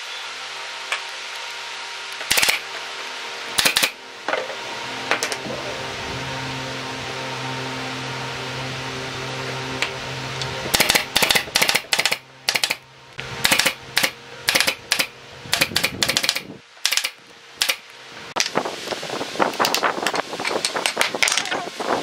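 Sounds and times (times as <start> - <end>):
steady hum: 0.0 - 22.0
pneumatic nailer firing: 2.2 - 2.8, 3.6 - 5.4, 10.7 - 12.8, 13.4 - 18.5.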